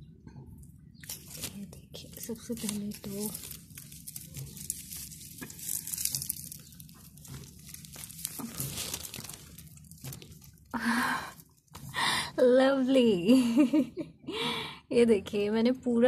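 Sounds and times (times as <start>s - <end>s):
soil and roots crunching: 1.0s - 12.0s
soil crumbling: 1.0s - 12.0s.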